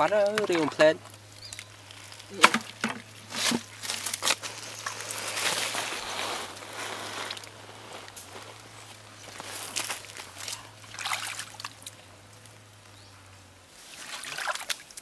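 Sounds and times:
water and mud swishing: 0:09.4 - 0:12.0, 0:13.8 - 0:15.0
hands splashing in muddy water: 0:09.7 - 0:11.9, 0:14.0 - 0:15.0.

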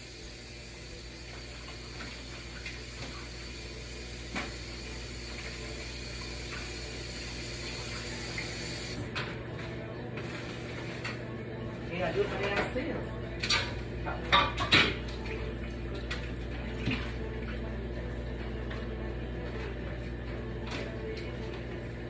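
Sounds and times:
tap water running into sink: 0:00.0 - 0:09.0.

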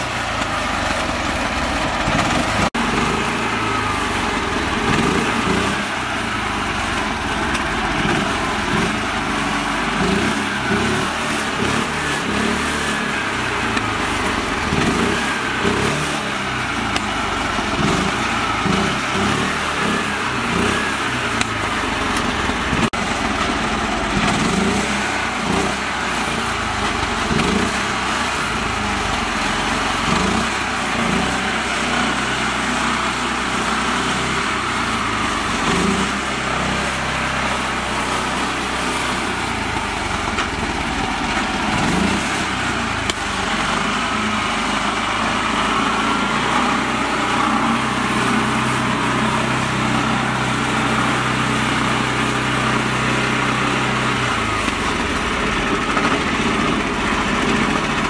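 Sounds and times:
small tractor engine running: 0:00.0 - 0:58.0.

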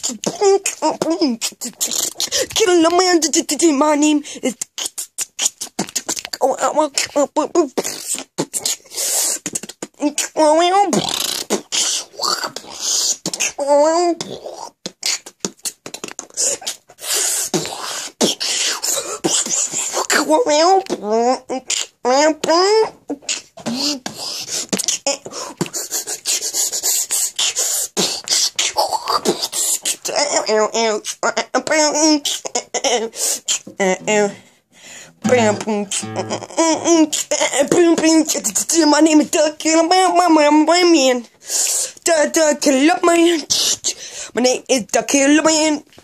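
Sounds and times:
beatboxing clicks and hissing: 0:00.0 - 0:03.1, 0:04.5 - 0:06.4, 0:07.8 - 0:10.3, 0:10.9 - 0:13.6, 0:14.2 - 0:20.2, 0:23.3 - 0:30.0
wordless sung phrases: 0:34.0 - 0:37.1.

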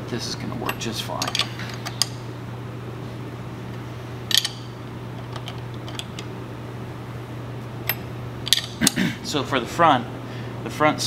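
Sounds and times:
steady low hum: 0:00.0 - 0:11.0
wrench clinking on metal nuts: 0:00.6 - 0:01.5, 0:07.9 - 0:08.8.

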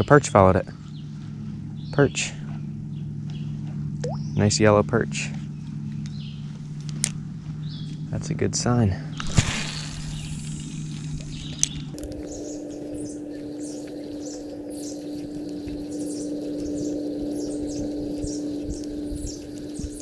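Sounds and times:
fishing reel whirring: 0:09.2 - 0:11.6.

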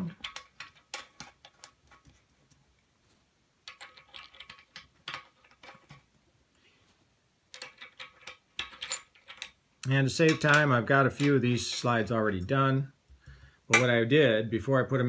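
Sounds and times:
metal valve caps clicking: 0:00.0 - 0:01.8, 0:03.6 - 0:06.0, 0:07.5 - 0:11.9.

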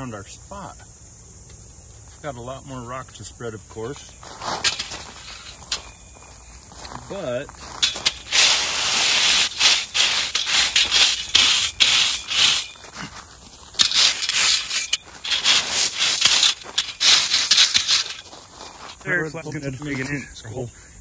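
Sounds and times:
rake scraping gravel: 0:03.8 - 0:20.2
stones rattling: 0:04.2 - 0:06.9, 0:07.6 - 0:19.0.

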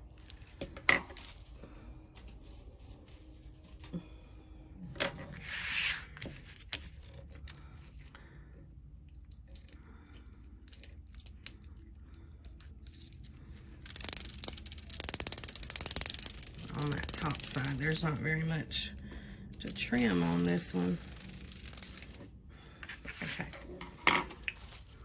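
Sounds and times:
paper crinkling: 0:02.2 - 0:04.0, 0:12.5 - 0:25.0.

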